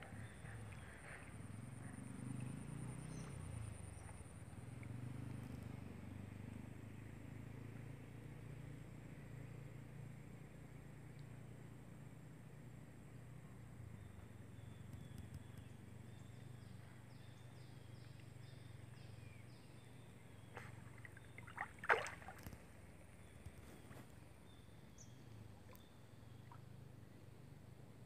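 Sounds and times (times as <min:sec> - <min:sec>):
faint outdoor background: 0:00.0 - 0:28.0
otter splashing in water: 0:20.5 - 0:22.8.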